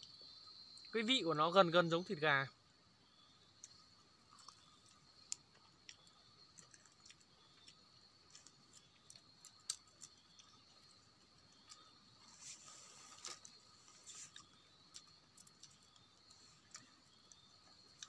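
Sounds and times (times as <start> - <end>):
insects droning: 0.0 - 18.0
faint chewing: 3.6 - 18.0.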